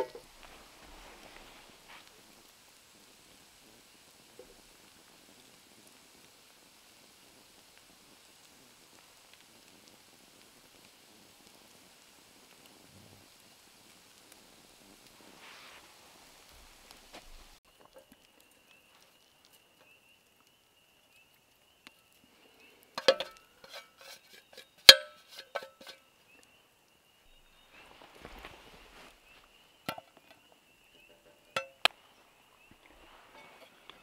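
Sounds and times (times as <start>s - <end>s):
metal cookware clinking: 23.0s - 26.0s, 31.0s - 31.9s.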